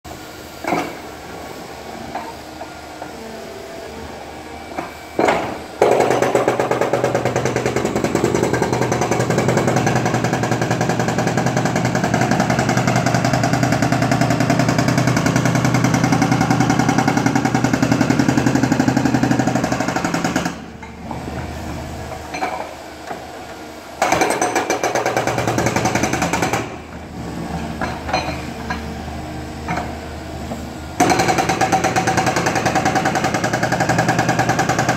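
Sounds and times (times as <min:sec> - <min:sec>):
hydraulic breaker hammering: 0:04.7 - 0:20.9, 0:31.0 - 0:34.9.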